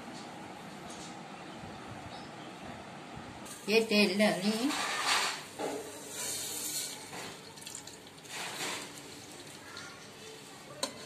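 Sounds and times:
oil pouring into metal pot: 6.3 - 9.8.

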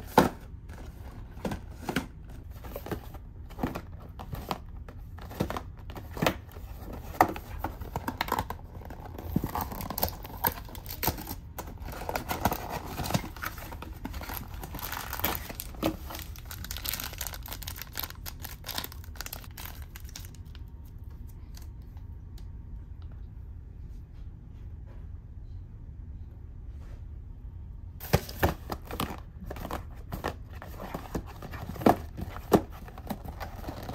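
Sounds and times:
plastic wrapper tearing and crinkling: 8.0 - 20.6.

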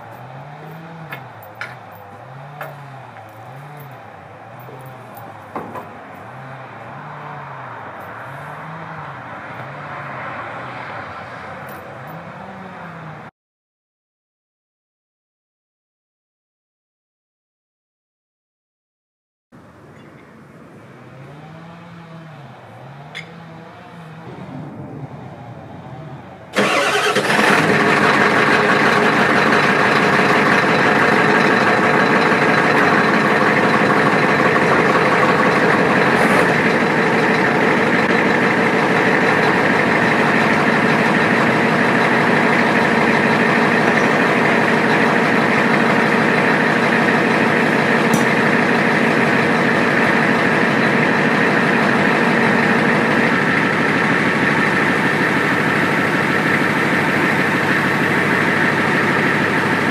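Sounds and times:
truck engine starting and idling: 0.0 - 13.3, 19.6 - 59.9.

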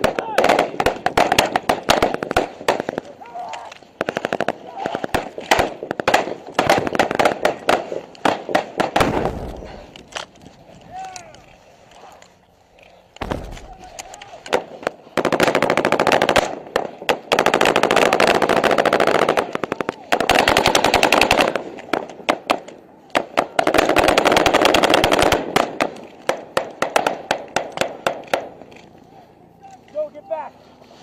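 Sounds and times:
single gunshots: 4.0 - 9.8, 13.2 - 18.3
automatic gunfire bursts: 14.5 - 21.6, 23.2 - 28.5.

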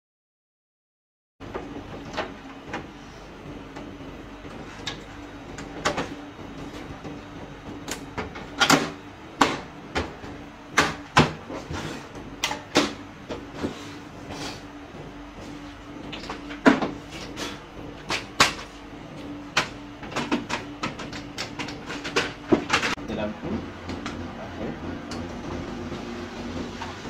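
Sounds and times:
steady low hum: 1.4 - 27.0.

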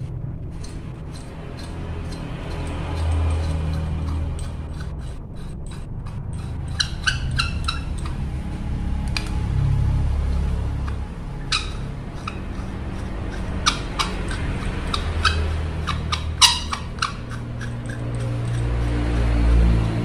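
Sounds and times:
low hum: 0.0 - 20.0
metal hardware clinking: 10.3 - 19.2.

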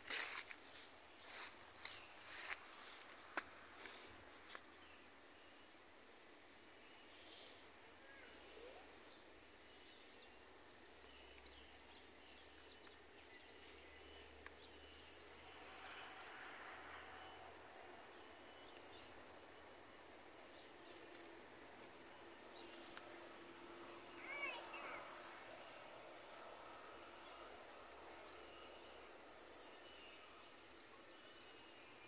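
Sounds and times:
faint chirps: 6.8 - 19.4, 22.4 - 32.0
high-pitched insect drone: 21.7 - 32.0.

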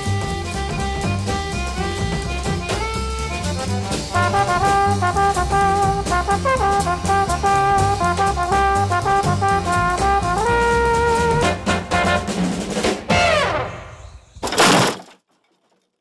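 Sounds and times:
walking bass line: 0.0 - 12.3
steady drum beat: 0.0 - 13.5
brass instruments: 0.0 - 14.0.

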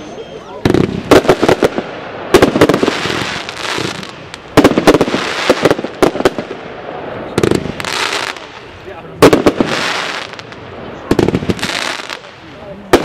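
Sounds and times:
firework shots banging: 0.6 - 6.7, 9.2 - 13.0
firework hiss: 0.7 - 13.0.

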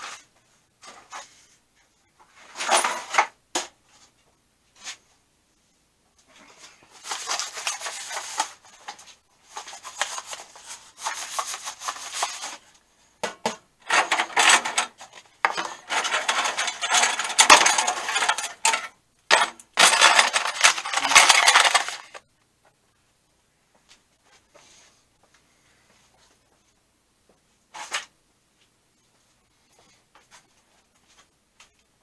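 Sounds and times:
metal parts clattering into plastic container: 2.5 - 3.3, 13.8 - 22.2.

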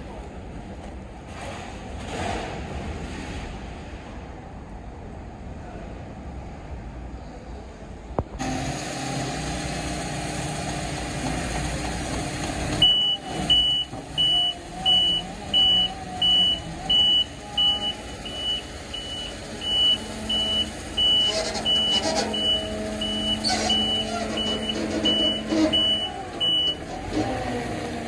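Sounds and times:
diesel engine running: 8.4 - 28.0
reversing alarm beeping: 12.8 - 26.9.

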